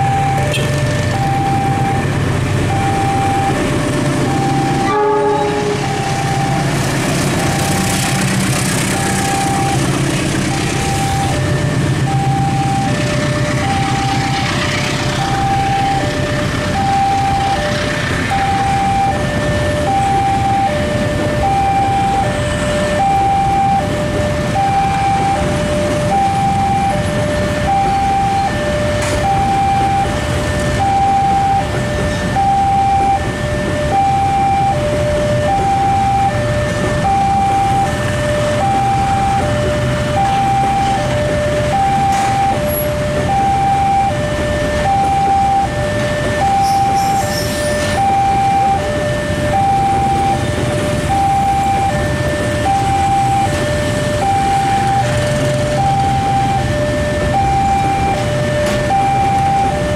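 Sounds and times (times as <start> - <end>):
two-tone level crossing alarm: 0.0 - 59.9
freight train rumbling past: 2.0 - 19.9.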